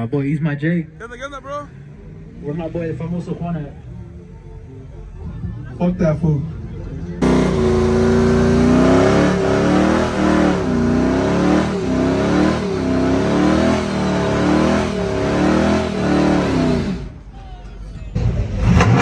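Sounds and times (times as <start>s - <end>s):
truck engine revving high: 7.2s - 17.2s, 18.2s - 19.0s.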